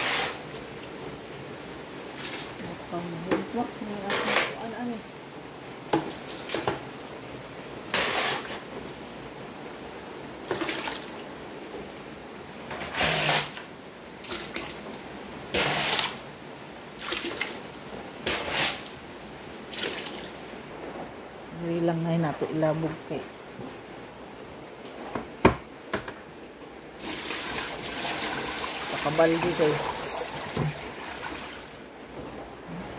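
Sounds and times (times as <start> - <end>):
water pouring into plastic bucket: 27.0 - 31.7.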